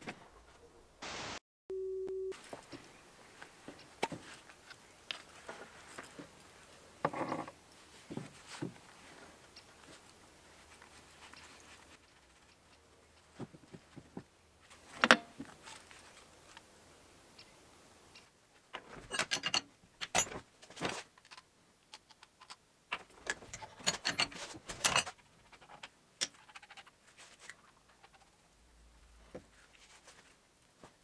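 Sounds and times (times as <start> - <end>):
metal tools clinking: 19.0 - 20.4, 23.3 - 25.2.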